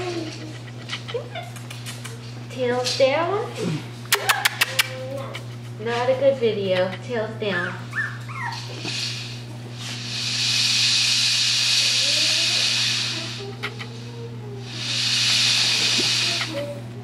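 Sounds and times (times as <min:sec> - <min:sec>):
low electrical hum: 0:00.0 - 0:17.0
steady hiss: 0:08.8 - 0:13.5, 0:14.6 - 0:16.7.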